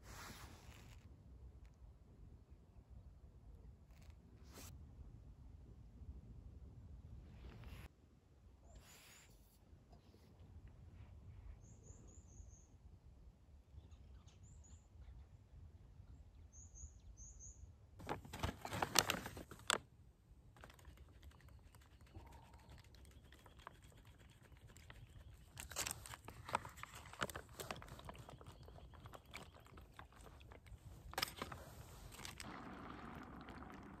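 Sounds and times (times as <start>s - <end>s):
plastic pouch crinkling: 18.0s - 19.8s, 20.5s - 33.8s.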